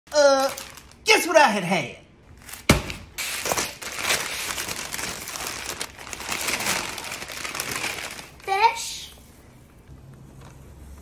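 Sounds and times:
paper crinkling and rustling: 0.4 - 1.1, 3.2 - 8.8.

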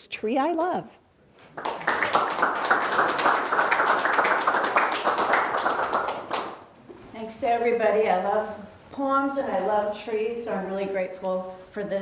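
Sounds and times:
audience applauding: 1.4 - 6.7.

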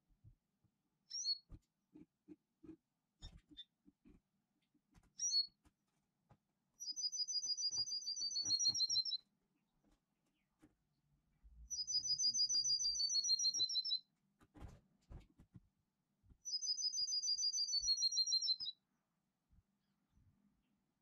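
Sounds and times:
short high bird chirp: 6.8 - 9.2, 11.7 - 14.0, 16.5 - 18.7.

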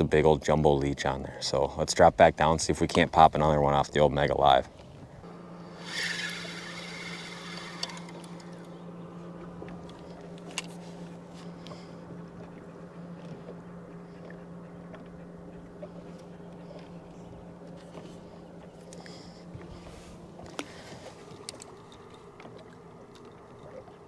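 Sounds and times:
electric trolling motor hum: 4.9 - 24.0.

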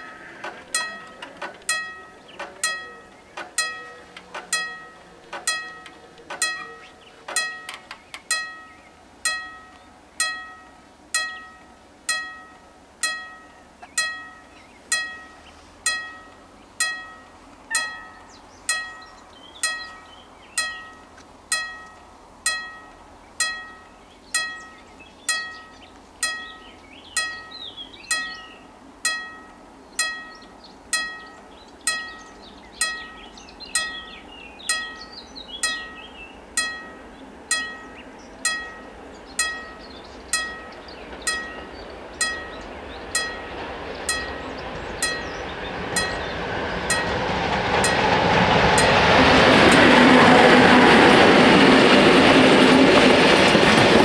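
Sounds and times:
faint bird chirps: 0.0 - 46.4
level-crossing warning bell clanging: 0.0 - 54.0.

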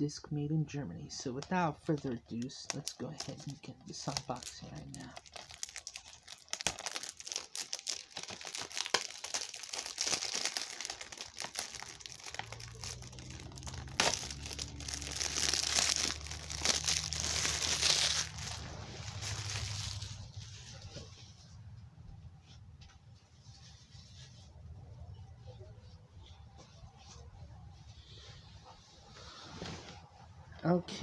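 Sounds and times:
plastic wrap crinkling: 1.9 - 21.1.

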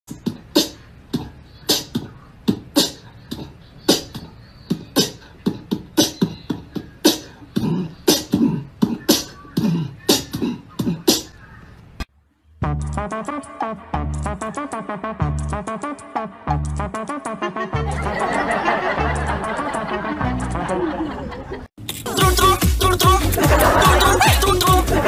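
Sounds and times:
person's voice: 22.1 - 25.0.

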